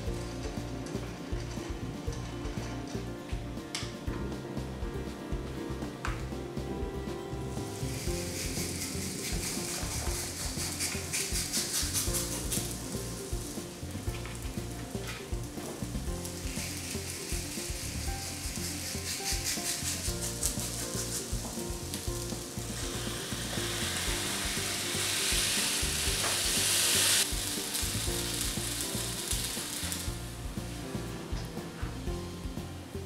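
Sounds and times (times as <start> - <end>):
dough sizzling in waffle maker: 7.5 - 31.0.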